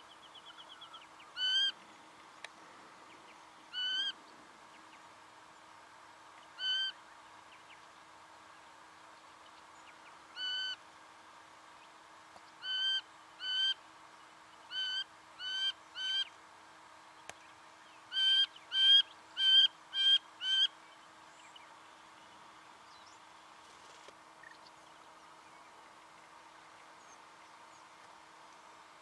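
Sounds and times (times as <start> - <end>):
honeyeater calling: 0.4 - 1.8, 3.7 - 4.2, 6.6 - 7.0, 10.4 - 10.8, 12.6 - 13.8, 14.7 - 16.3, 18.1 - 20.7.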